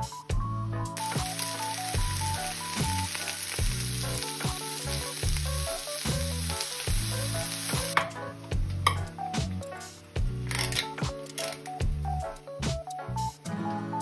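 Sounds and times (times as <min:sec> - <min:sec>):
vegetables sizzling in a frying pan: 0:01.0 - 0:10.6.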